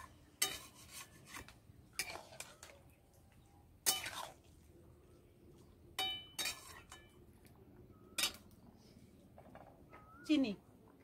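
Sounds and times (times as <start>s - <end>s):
metal spatula scraping wok: 0.0s - 2.7s, 3.8s - 4.5s, 6.0s - 7.1s.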